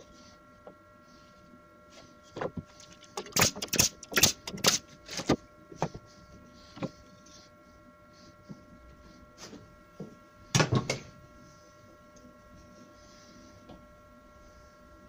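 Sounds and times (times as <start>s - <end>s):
pin nailer firing: 3.2s - 4.8s.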